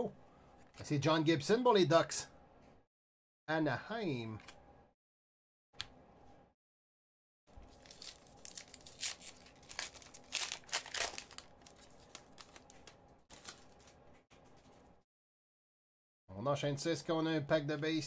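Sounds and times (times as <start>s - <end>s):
foil wrapper crackling: 7.6s - 14.0s.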